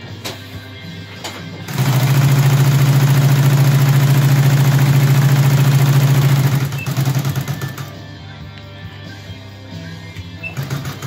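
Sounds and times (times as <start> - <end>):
industrial sewing machine stitching: 1.7 - 7.9, 10.5 - 11.0.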